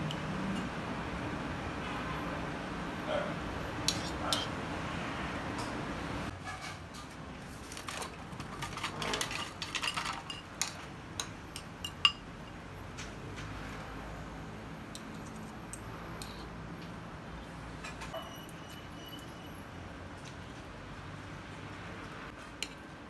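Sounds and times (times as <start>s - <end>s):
cutlery scraping ceramic bowl: 3.9s - 4.6s, 8.4s - 12.2s, 15.0s - 16.6s, 17.9s - 19.5s.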